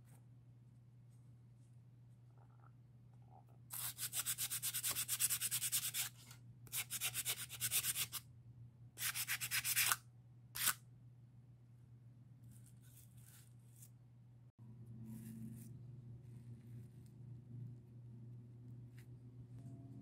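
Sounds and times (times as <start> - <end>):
sandpaper sanding wood: 3.8 - 6.1.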